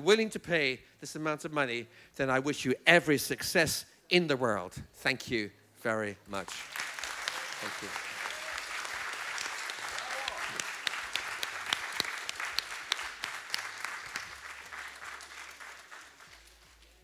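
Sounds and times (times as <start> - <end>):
audience applauding: 6.4 - 17.0.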